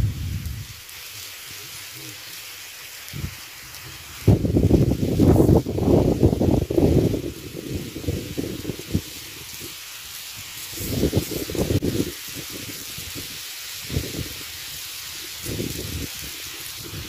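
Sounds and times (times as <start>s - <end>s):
wind buffeting microphone: 0.0s - 0.8s, 3.1s - 3.4s, 4.2s - 9.8s, 10.7s - 17.0s
steady hiss: 0.0s - 17.0s.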